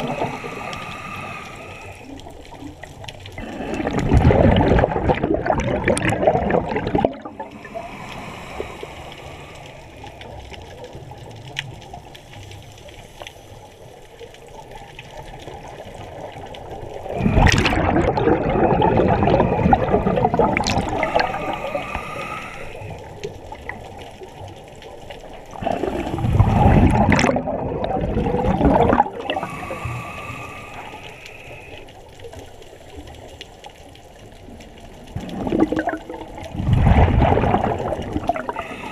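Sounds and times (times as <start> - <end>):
regulator inhale hiss: 0.0 - 2.4, 7.4 - 10.5, 20.8 - 23.4, 29.2 - 32.0, 38.5 - 38.9
exhaled bubbles rushing: 2.6 - 10.0, 15.5 - 24.0, 25.2 - 31.0, 34.9 - 38.9.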